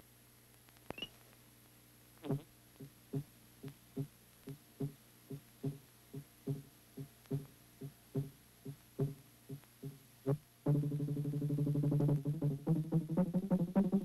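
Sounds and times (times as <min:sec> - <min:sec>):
low throbbing synthetic beat: 0:04.8 - 0:06.7, 0:08.2 - 0:08.4, 0:09.0 - 0:09.2, 0:09.8 - 0:14.0.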